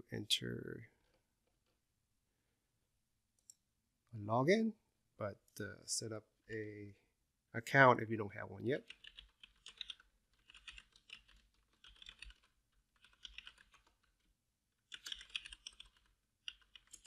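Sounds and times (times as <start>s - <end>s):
computer keyboard typing: 8.8s - 14.2s, 14.9s - 17.0s.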